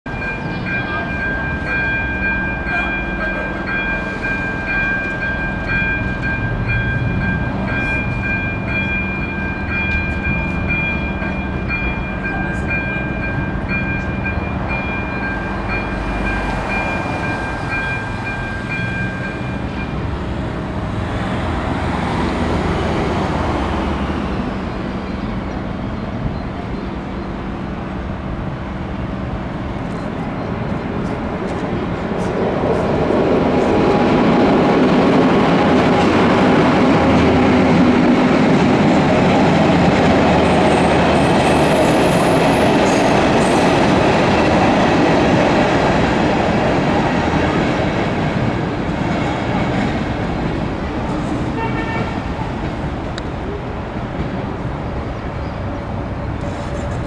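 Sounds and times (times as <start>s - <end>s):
level crossing bell ringing: 0.1s - 20.1s
passing vehicles: 1.4s - 57.0s.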